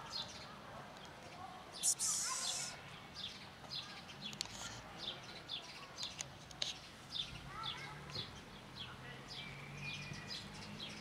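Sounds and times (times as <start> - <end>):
small bird chirping: 1.7 - 4.4
burst of hiss: 1.8 - 2.8.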